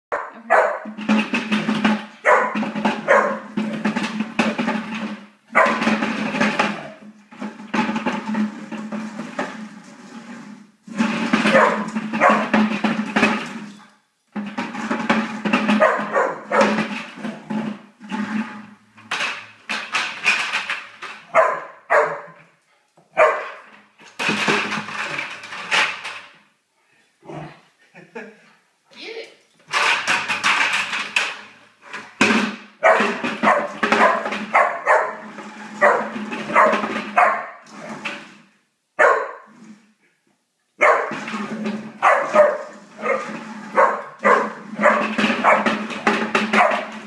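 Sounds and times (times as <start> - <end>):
puppy barking: 0.1 - 0.9, 2.2 - 3.5, 5.6 - 5.8, 15.8 - 16.8, 21.3 - 22.4, 23.2 - 23.6, 32.8 - 35.2, 35.8 - 37.6, 39.0 - 39.5, 40.8 - 41.2, 42.0 - 43.2, 43.8 - 45.7
plastic bucket scraping on floor: 0.1 - 22.5, 23.1 - 26.5, 29.6 - 40.1, 40.8 - 47.0.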